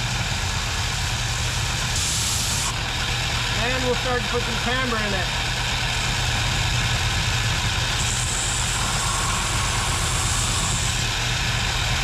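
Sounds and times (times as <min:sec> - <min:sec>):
belt sander motor hum: 0:00.0 - 0:04.5, 0:05.3 - 0:12.0
hiss of wood sanding: 0:08.0 - 0:11.0.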